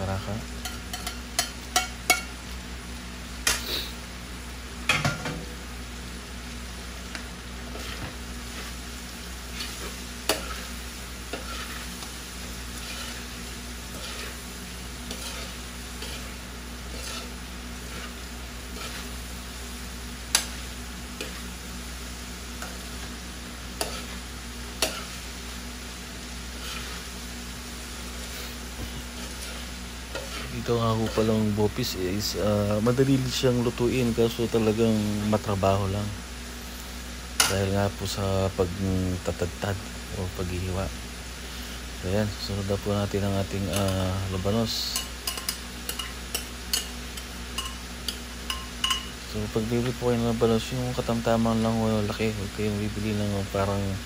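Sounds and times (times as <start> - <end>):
food sizzling in frying pan: 0.0 - 54.0
metal spoon stirring: 0.6 - 2.2, 11.3 - 11.8, 12.8 - 13.3, 13.9 - 14.4, 15.0 - 19.1, 23.8 - 24.2, 29.2 - 31.4, 44.9 - 46.9, 47.6 - 49.1
spoon clinking against pan: 0.6 - 2.3, 44.9 - 46.9, 47.6 - 49.1.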